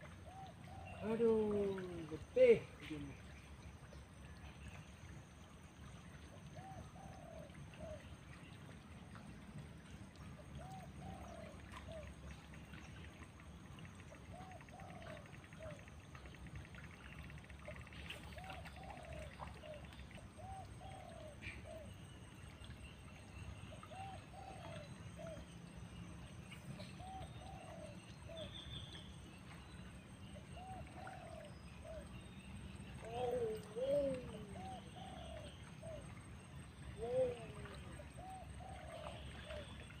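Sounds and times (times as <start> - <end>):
dove cooing: 14.3 - 15.8, 18.4 - 19.8, 27.0 - 28.4, 30.6 - 32.0, 33.0 - 36.0, 37.0 - 39.7.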